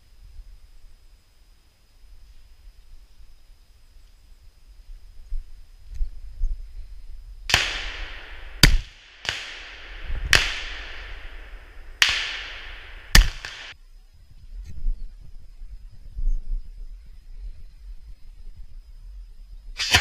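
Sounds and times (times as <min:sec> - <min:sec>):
ringing echo through forest: 0:07.5 - 0:13.8
shotgun shots: 0:07.5 - 0:13.8.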